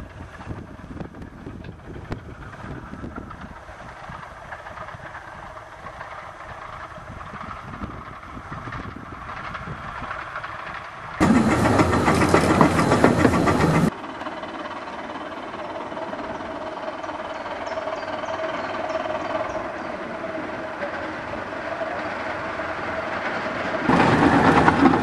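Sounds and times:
steam locomotive running: 0:00.0 - 0:25.0
rapid exhaust beats: 0:11.2 - 0:14.0.

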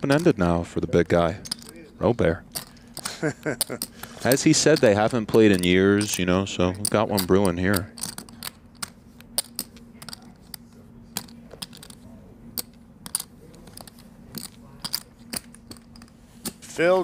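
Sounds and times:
poker chips clicking: 0:00.0 - 0:00.4, 0:01.4 - 0:01.8, 0:02.5 - 0:10.6, 0:11.2 - 0:12.0, 0:12.6 - 0:16.2.

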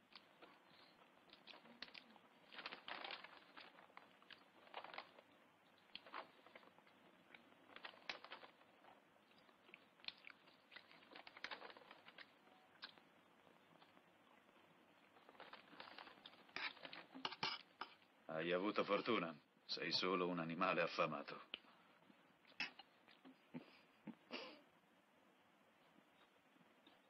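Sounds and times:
chewing: 0:00.0 - 0:18.0.

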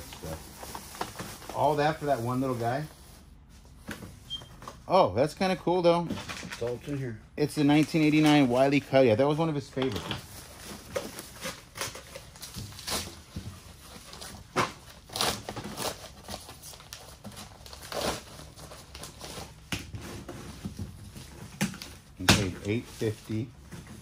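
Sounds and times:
packaging crinkling and rustling: 0:00.0 - 0:04.8, 0:06.1 - 0:08.9, 0:09.7 - 0:24.0.

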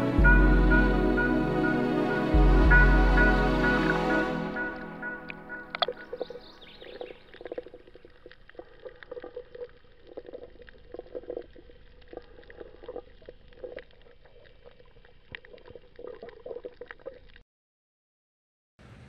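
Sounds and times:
underwater bubbling and gurgling: 0:05.6 - 0:17.4.

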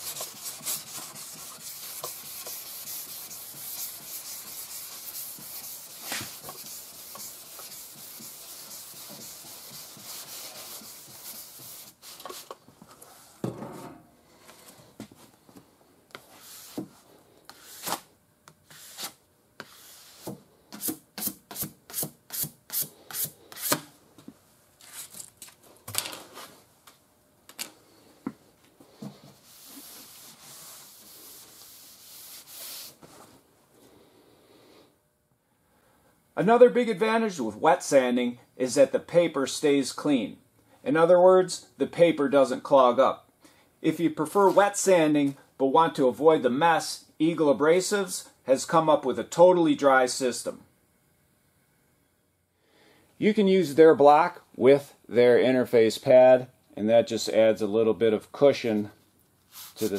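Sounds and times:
sandpaper rubbing on car panel: 0:00.0 - 0:12.0.

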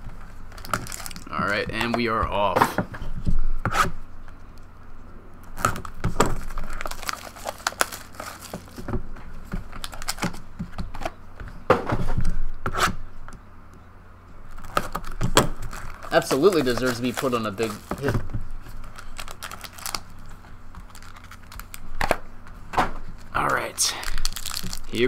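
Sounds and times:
cardboard tearing and crinkling: 0:00.5 - 0:01.6, 0:05.6 - 0:08.9, 0:09.6 - 0:10.4, 0:14.5 - 0:22.1, 0:23.2 - 0:25.0.

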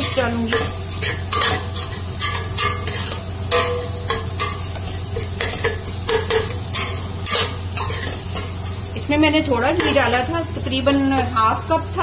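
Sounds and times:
metal spoon clinking on pot: 0:00.0 - 0:08.8, 0:09.8 - 0:10.1
spoon scraping pot: 0:00.0 - 0:08.8
frying sizzle: 0:00.0 - 0:12.0.

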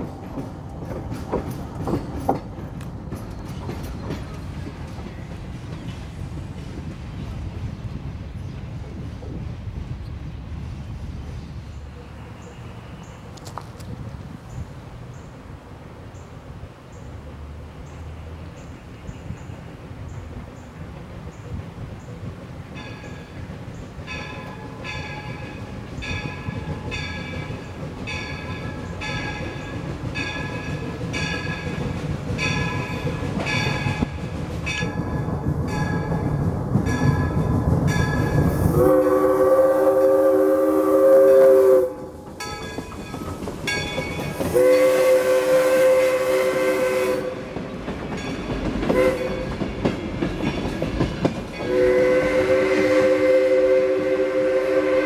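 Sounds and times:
steam locomotive rumble: 0:00.0 - 0:55.0
locomotive bell ringing: 0:22.8 - 0:23.4, 0:24.1 - 0:31.8, 0:32.4 - 0:34.1, 0:42.4 - 0:44.9
chime steam whistle: 0:38.4 - 0:42.6, 0:43.7 - 0:47.4, 0:51.6 - 0:55.0.

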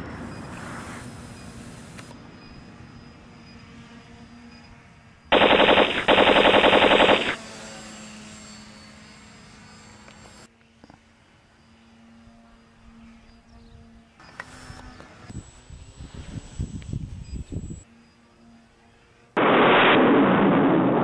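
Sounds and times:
small electric motor whine: 0:00.1 - 0:19.4
machine-gun fire bursts: 0:05.3 - 0:07.4.

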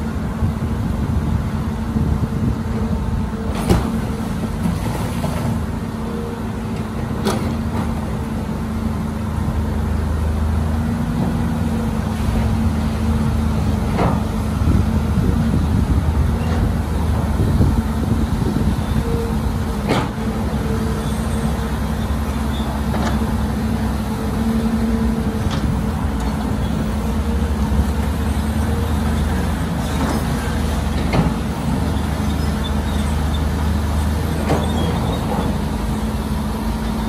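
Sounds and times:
diesel engine low rumble: 0:00.0 - 0:37.0.

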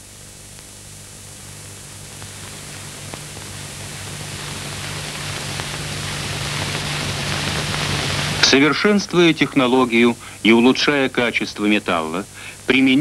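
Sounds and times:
low hum: 0:00.0 - 0:09.6
steady hiss: 0:00.0 - 0:13.0.

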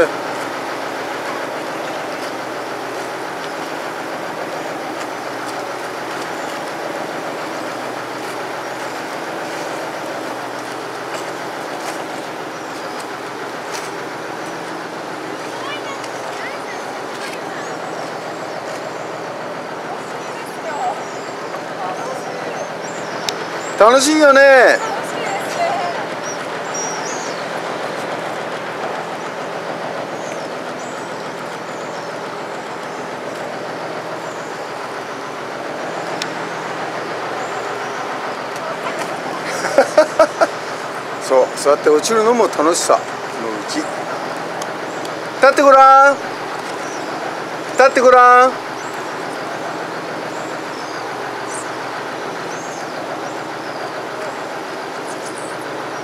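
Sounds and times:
boat engine humming: 0:00.0 - 0:56.0
choppy sea water: 0:00.0 - 0:56.0.

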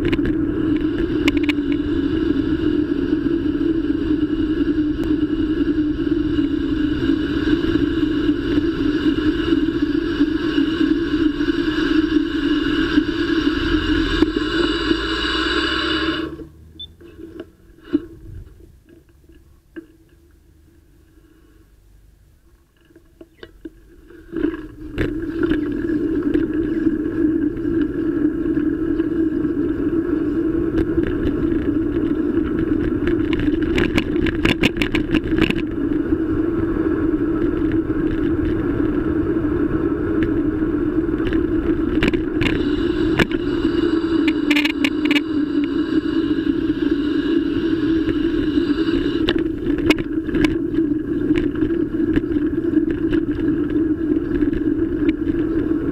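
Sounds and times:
bicycle riding hum and rumble: 0:00.0 - 0:55.9.

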